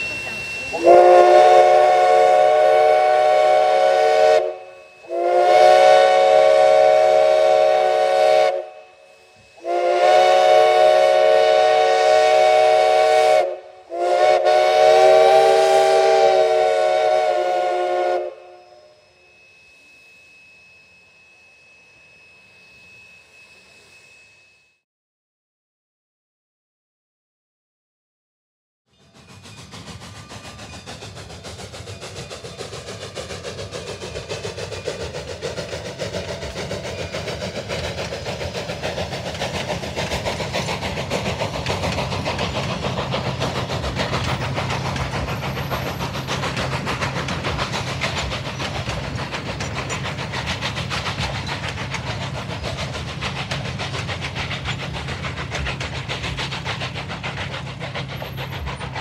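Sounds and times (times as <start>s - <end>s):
train coaches clattering on rails: 0.0s - 8.5s, 28.9s - 59.0s
steam locomotive exhaust chuffs: 0.0s - 24.8s, 28.9s - 59.0s.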